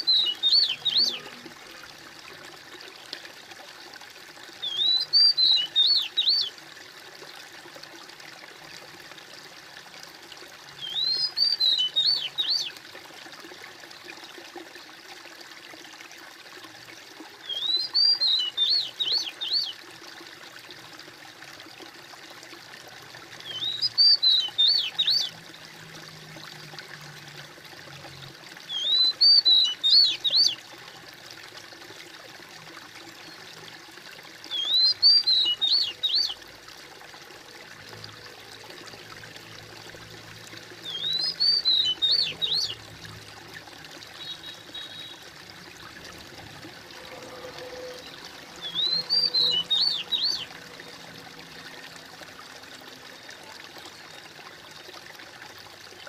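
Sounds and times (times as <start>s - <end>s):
songbird chirping: 0.0s - 1.4s, 4.6s - 6.5s, 10.8s - 12.8s, 17.5s - 19.8s, 23.4s - 25.4s, 28.7s - 30.6s, 34.5s - 36.4s, 40.8s - 42.8s, 44.1s - 45.2s, 47.0s - 50.5s
trickling water: 0.0s - 56.0s.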